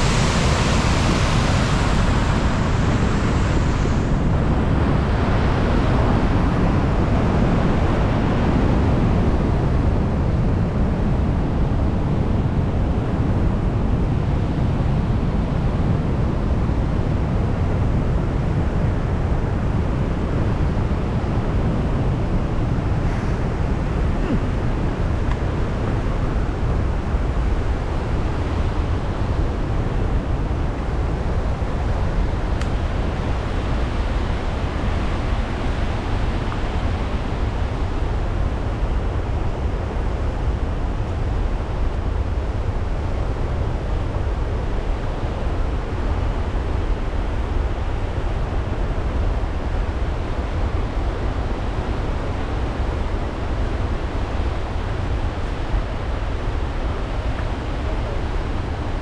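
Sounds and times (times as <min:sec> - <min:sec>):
waterfall rushing: 0:00.0 - 0:06.4.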